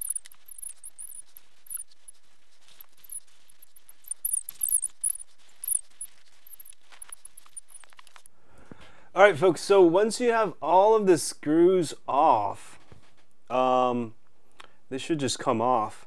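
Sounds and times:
high-pitched squeaky chirps: 0:00.0 - 0:08.3.

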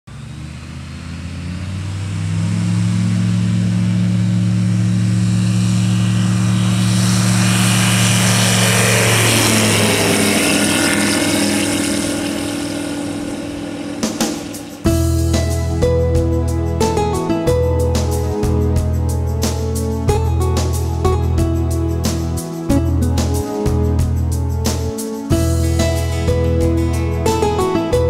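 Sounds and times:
light aircraft engine and propeller: 0:00.1 - 0:28.0.

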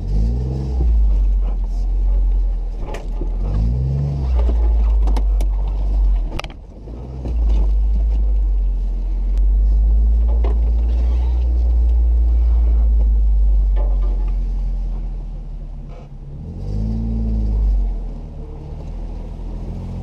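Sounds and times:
car engine low rumble: 0:00.0 - 0:20.0.

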